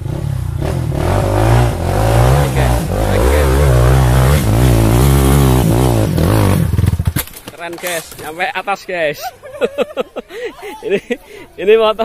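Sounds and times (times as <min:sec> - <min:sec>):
motorcycle engine revving hard: 0:00.0 - 0:07.2.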